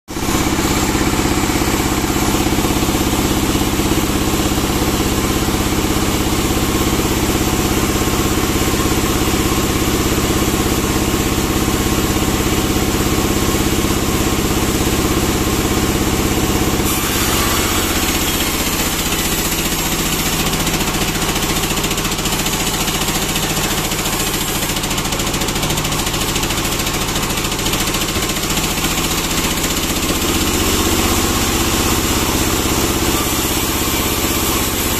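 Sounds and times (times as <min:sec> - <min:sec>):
band saw humming: 0:00.1 - 0:09.8, 0:14.6 - 0:34.9.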